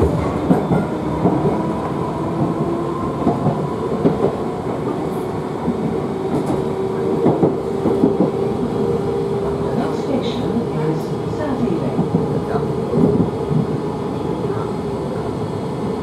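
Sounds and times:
train rumble inside carriage: 0:00.0 - 0:16.0.

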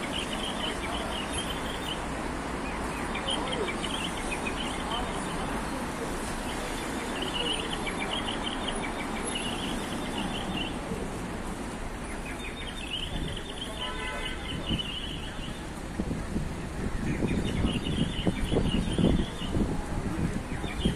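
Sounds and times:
passers-by: 0:00.0 - 0:20.9
traffic hum: 0:00.0 - 0:20.9
high bird chirping: 0:17.1 - 0:19.6.

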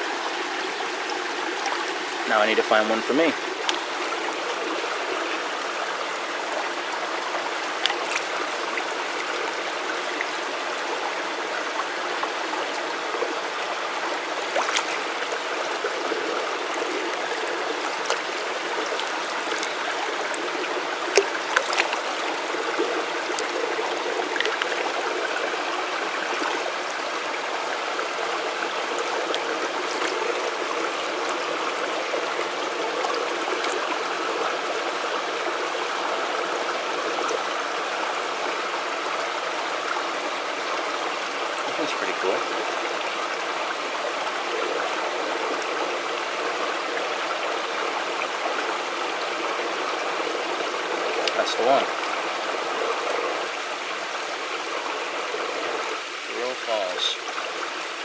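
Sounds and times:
stream trickling over rocks: 0:00.0 - 0:58.0
splashes and pebble clicks: 0:03.6 - 0:03.9, 0:07.7 - 0:08.5, 0:14.5 - 0:15.2, 0:18.0 - 0:20.4, 0:21.1 - 0:25.0, 0:29.2 - 0:30.4.

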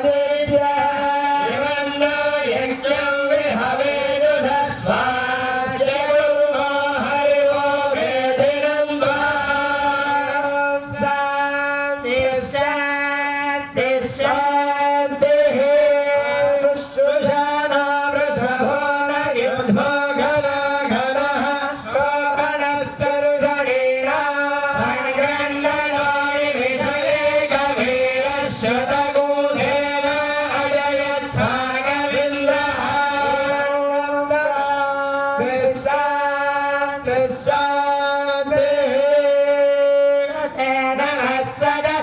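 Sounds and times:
man singing a devotional chant: 0:00.0 - 0:42.0.

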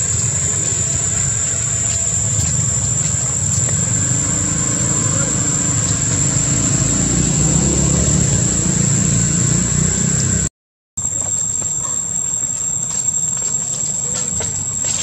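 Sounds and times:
motor humming: 0:00.0 - 0:10.3
outdoor background noise: 0:00.0 - 0:15.0.

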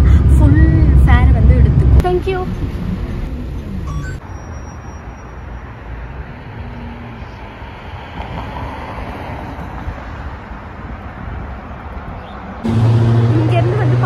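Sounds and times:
wind rumble on microphone: 0:00.0 - 0:03.9
cars driving on road: 0:00.0 - 0:14.0.

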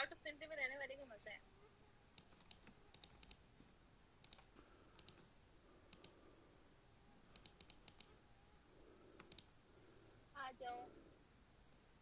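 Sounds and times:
faint small clicks: 0:04.2 - 0:05.3, 0:05.9 - 0:06.2, 0:07.3 - 0:08.1, 0:09.2 - 0:09.5.

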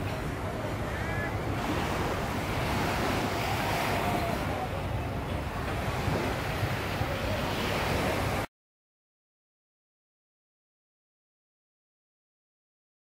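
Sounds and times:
surf: 0:00.0 - 0:08.5
wind: 0:00.0 - 0:08.5
wind rumbling on microphone: 0:00.0 - 0:08.5.

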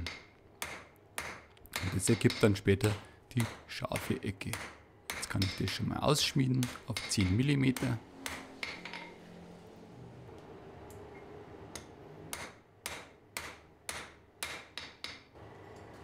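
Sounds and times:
hammer striking steel on anvil: 0:00.0 - 0:05.8, 0:06.6 - 0:09.2, 0:11.7 - 0:15.3.

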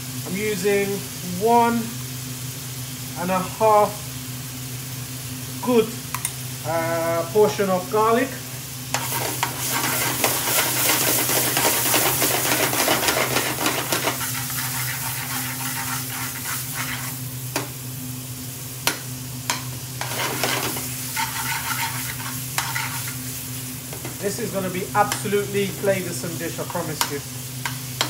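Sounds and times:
steady low hum: 0:00.0 - 0:28.0
vegetables sizzling in oil: 0:00.0 - 0:28.0
metal spoon scraping pan: 0:09.0 - 0:17.2, 0:20.0 - 0:23.2.

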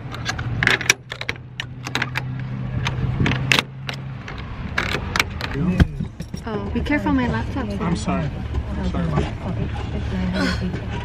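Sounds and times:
padlock metal clicks and clacks: 0:00.0 - 0:05.6.

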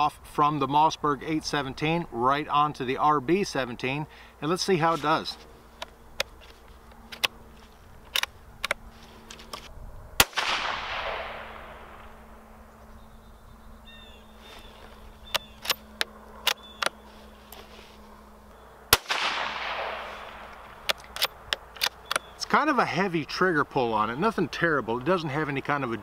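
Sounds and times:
rifle bolt metallic clicks: 0:08.0 - 0:09.7, 0:15.2 - 0:17.0, 0:19.0 - 0:22.3
rifle shots with echo: 0:10.2 - 0:12.2, 0:18.9 - 0:20.7.

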